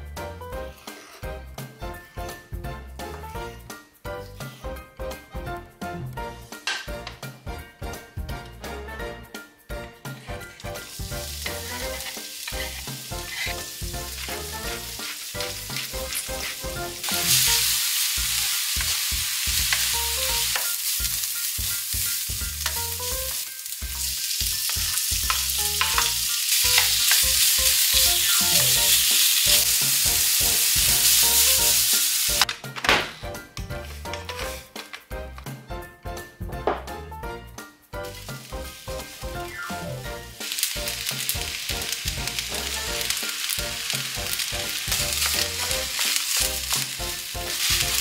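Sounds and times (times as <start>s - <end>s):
wooden spatula scraping wok: 0.7s - 1.3s, 10.0s - 32.5s, 33.8s - 35.0s, 40.2s - 48.0s
food sizzling in oil: 10.4s - 32.5s, 38.0s - 48.0s.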